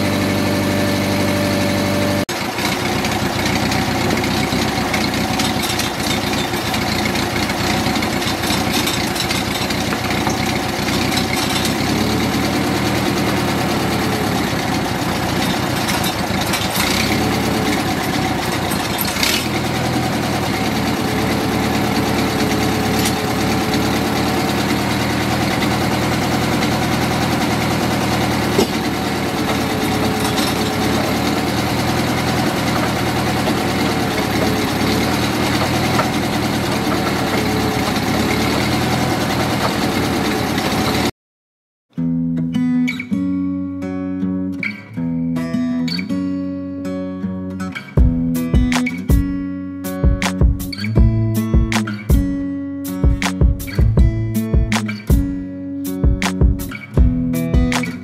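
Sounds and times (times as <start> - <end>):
sawmill engine idling: 0.0 - 41.1.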